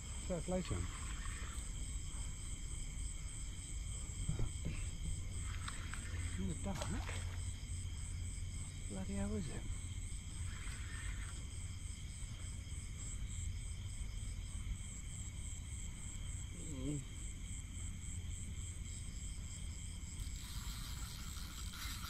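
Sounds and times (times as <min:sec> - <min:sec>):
night insects chirping: 0:00.0 - 0:22.0
fishing reel drag buzzing: 0:20.0 - 0:22.0.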